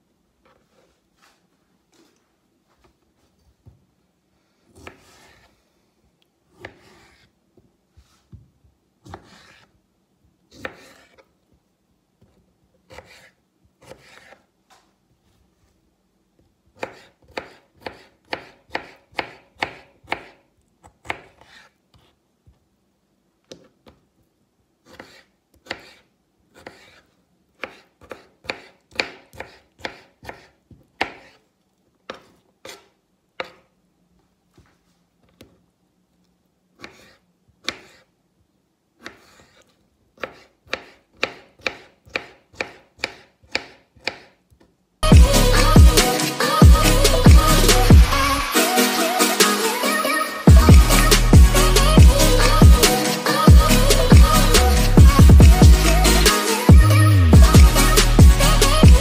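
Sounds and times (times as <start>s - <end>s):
knife chopping on cutting board: 9.0s - 9.7s, 12.9s - 14.4s, 16.8s - 21.7s, 27.6s - 31.4s, 36.8s - 38.0s, 39.0s - 44.3s.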